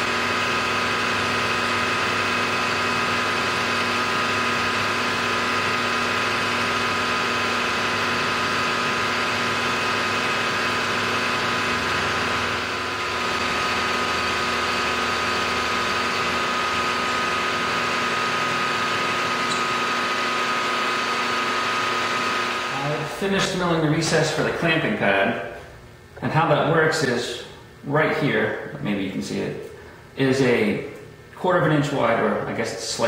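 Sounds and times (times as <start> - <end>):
milling machine whine: 0.0 - 25.0.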